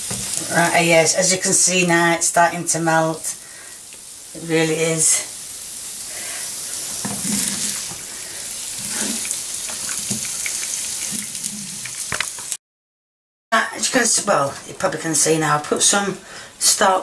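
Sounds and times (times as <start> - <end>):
onions sizzling in a pan: 0.0 - 12.6
wooden spatula scraping: 6.7 - 12.3.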